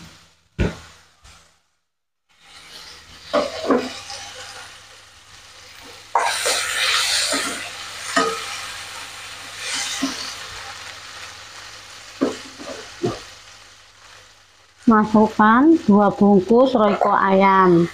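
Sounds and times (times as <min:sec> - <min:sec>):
tomatoes sizzling in oil: 0:00.0 - 0:17.9
wooden spatula scraping a pan: 0:02.3 - 0:04.8, 0:05.8 - 0:08.7, 0:09.6 - 0:10.4, 0:12.2 - 0:13.2.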